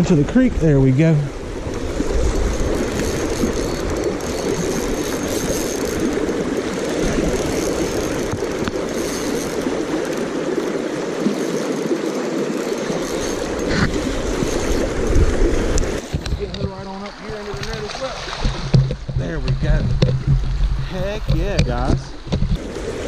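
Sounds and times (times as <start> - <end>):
creek water rushing: 0.0 - 23.0.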